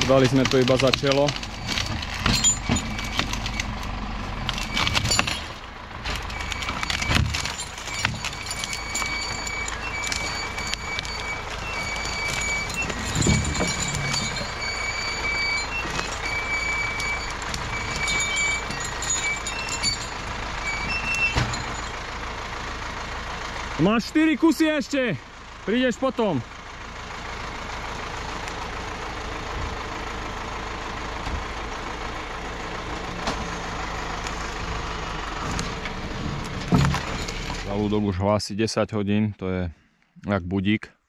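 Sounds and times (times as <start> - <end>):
tractor engine running: 0.0 - 38.8
high electronic warning beeps: 6.3 - 21.9.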